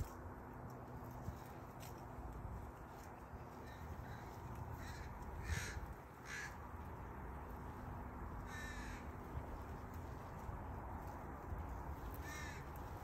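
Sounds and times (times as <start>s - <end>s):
low background rumble: 0.0s - 13.0s
bird calling: 3.4s - 6.6s, 8.4s - 9.9s, 12.1s - 13.0s.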